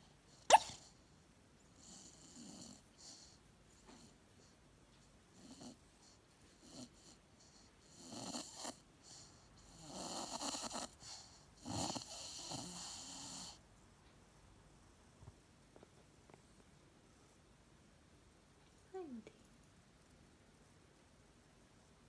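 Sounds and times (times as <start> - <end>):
puppy woofing in sleep: 0.3 - 1.0, 5.4 - 13.6.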